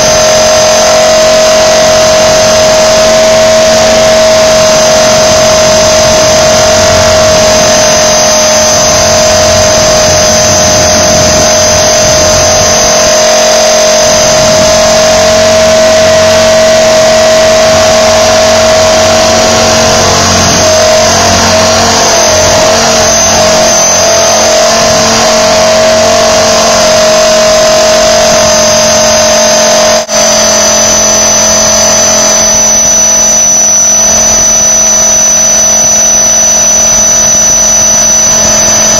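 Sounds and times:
rc helicopter motor whine: 0.0s - 38.9s.

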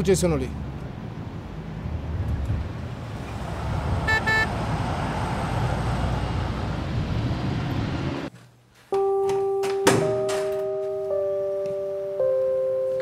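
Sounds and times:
road and engine noise in car: 0.0s - 8.3s
car horn toot: 4.0s - 4.6s.

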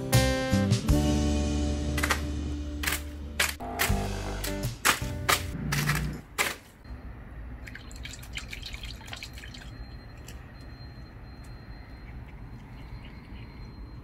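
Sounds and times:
water dripping: 7.5s - 10.7s.

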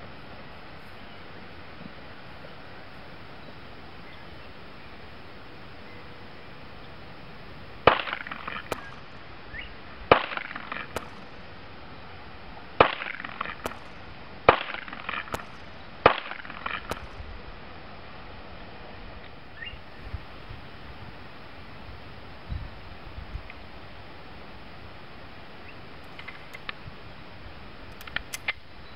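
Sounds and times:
pistol shots: 7.8s - 11.5s, 12.8s - 17.2s.

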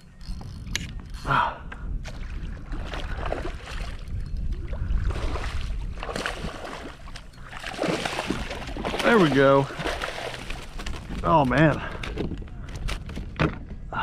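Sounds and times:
wind rumble on microphone: 0.0s - 14.0s
fish splashing at water surface: 6.0s - 10.8s.

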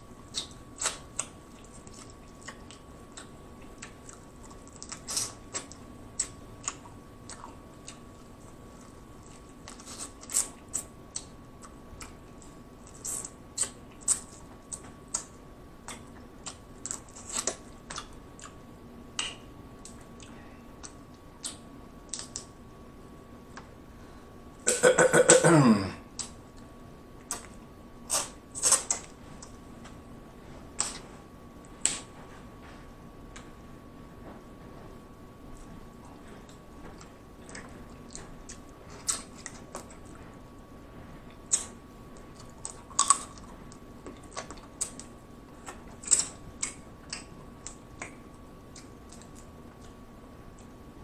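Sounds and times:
chewing: 0.3s - 18.6s, 35.6s - 40.4s, 41.3s - 50.7s.

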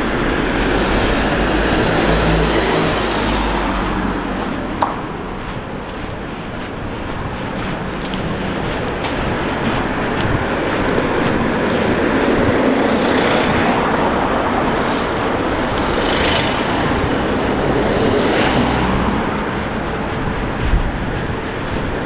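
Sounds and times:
road noise: 0.0s - 22.0s.

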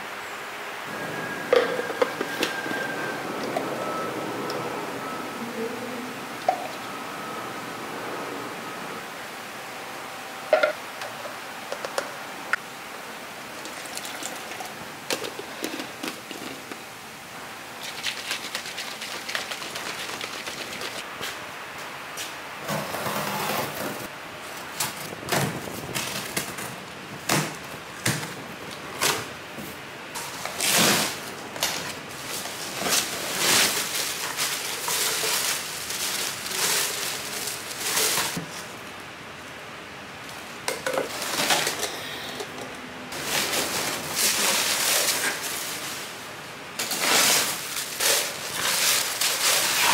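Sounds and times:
cardboard and paper rustling: 30.2s - 38.7s, 43.2s - 46.2s, 46.8s - 49.9s.

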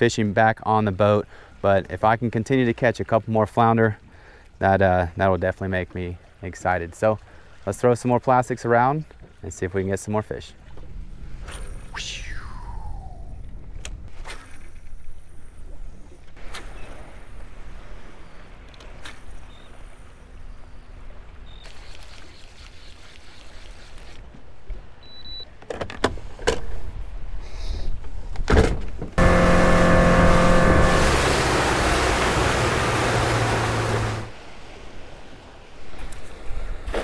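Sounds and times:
electric motor humming: 29.2s - 34.3s.

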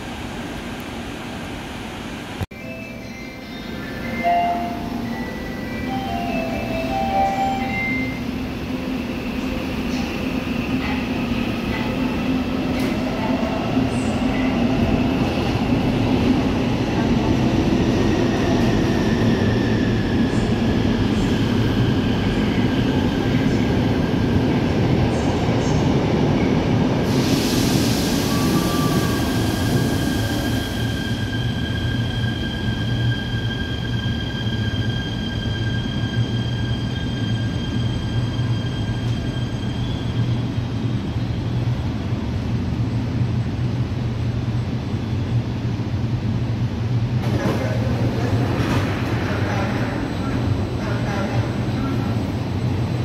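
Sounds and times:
air hiss: 27.0s - 30.8s
train wheels rumbling on rails: 46.6s - 53.0s.

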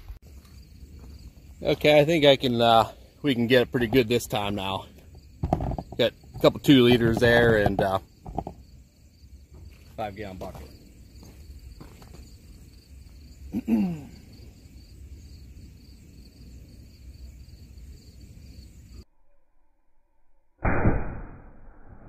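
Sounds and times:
rifle shot: 20.6s - 22.0s.

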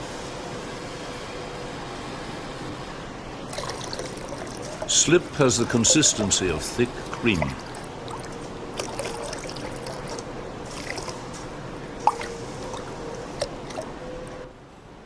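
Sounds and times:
faint steady hum: 0.0s - 15.0s
liquid clay pouring into bucket: 3.5s - 11.3s, 12.0s - 13.9s.

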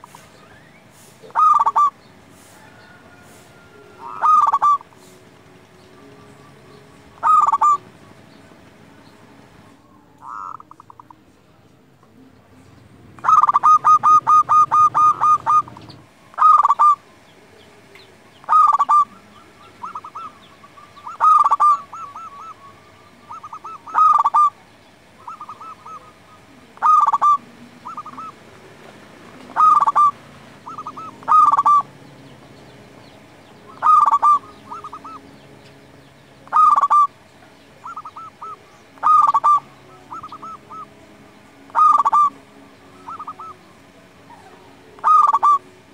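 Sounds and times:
dove cooing: 0.0s - 8.8s, 9.5s - 11.2s, 13.0s - 35.5s, 36.4s - 45.9s.

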